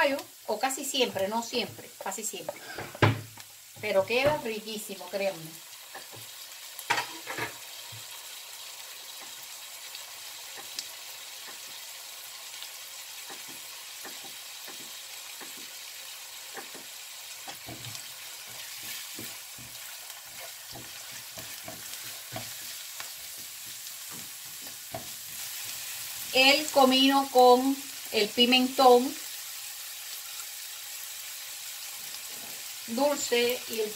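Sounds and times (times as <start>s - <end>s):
vegetables sizzling in oil: 0.0s - 33.9s
spatula stirring a pan: 5.8s - 8.2s, 8.9s - 12.0s, 12.8s - 27.1s.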